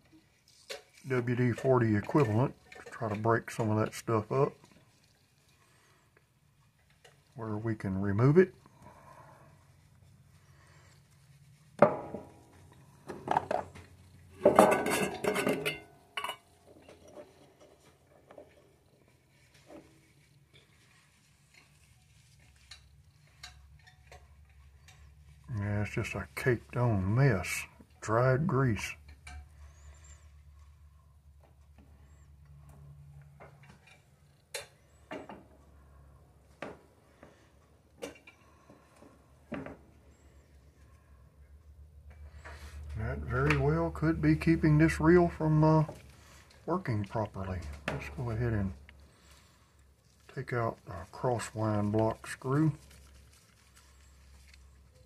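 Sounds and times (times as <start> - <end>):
hard objects clinking and clattering: 11.8 - 19.0.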